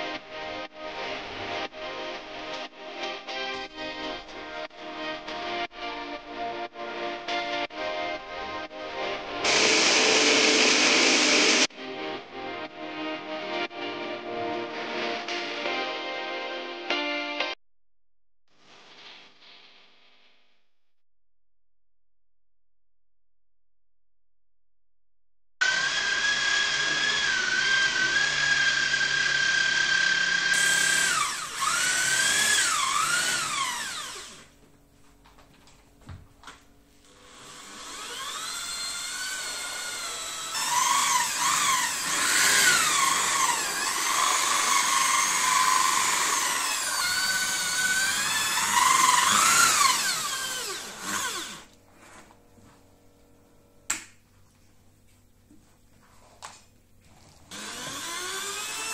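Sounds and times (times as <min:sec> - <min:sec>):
electric rotary brush scrubber whining: 0:09.4 - 0:11.7, 0:25.6 - 0:34.5, 0:37.1 - 0:51.7, 0:57.4 - 0:58.9.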